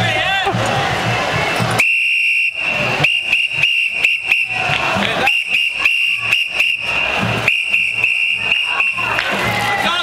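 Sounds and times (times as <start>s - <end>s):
whistle blasts: 1.8s - 9.2s.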